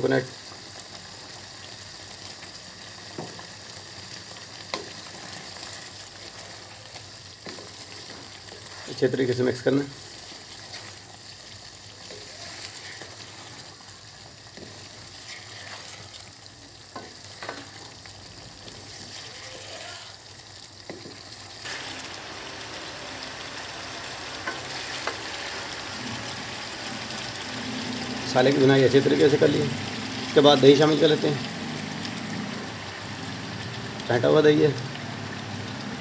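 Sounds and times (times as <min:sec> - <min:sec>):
food sizzling in oil: 0:00.0 - 0:36.0
wooden spatula scraping a pan: 0:10.0 - 0:11.1, 0:12.0 - 0:13.8, 0:14.5 - 0:16.3.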